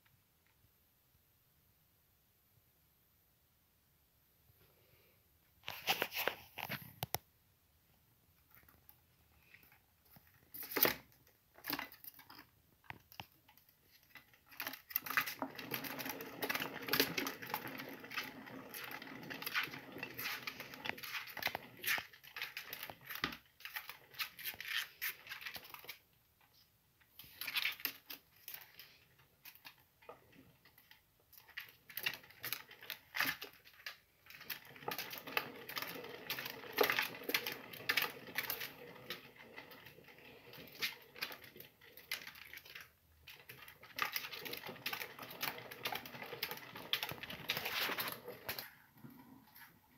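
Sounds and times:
plastic exercise wheel rattling: 9.5 - 26.1, 27.2 - 49.9.

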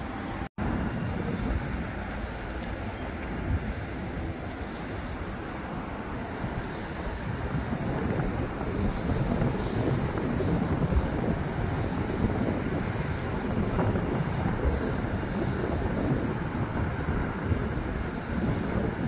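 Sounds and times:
jet engine rumble: 0.0 - 19.0.

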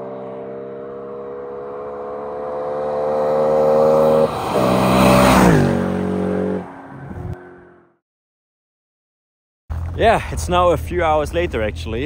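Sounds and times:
car driving past: 0.0 - 8.0.

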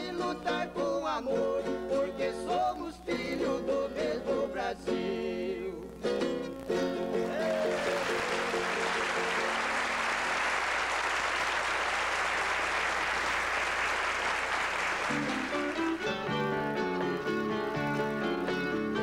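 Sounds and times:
audience applauding: 7.2 - 16.2
plucked acoustic strings: 15.1 - 19.0.

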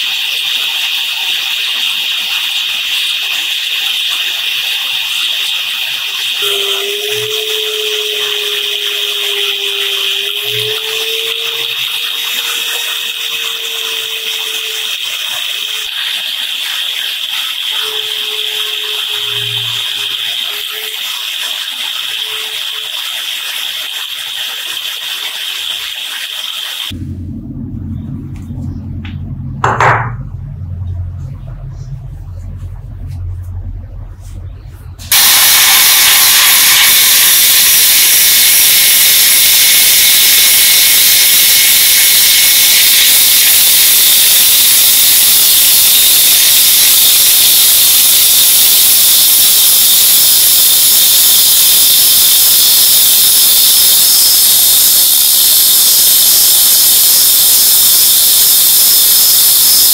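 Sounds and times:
low hum: 26.9 - 59.9
grinding wheel grinding steel: 35.1 - 59.9.

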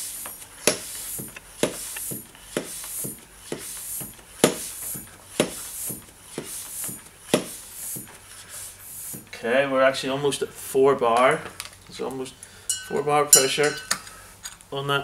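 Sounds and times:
air hissing: 0.0 - 9.3
floor pump strokes: 0.0 - 9.4.

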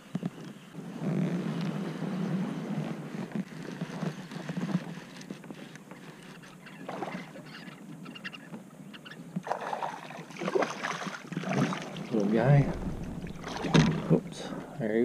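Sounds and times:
water lapping against kayak hull: 3.6 - 14.8.

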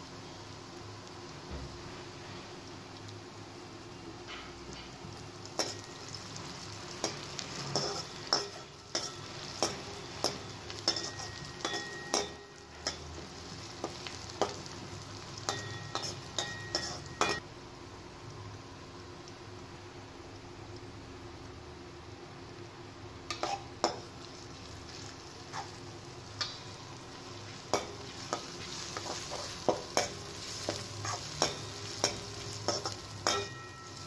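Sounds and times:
food sizzling in oil: 0.0 - 34.0
metal ladle scraping a wok: 27.7 - 34.0.

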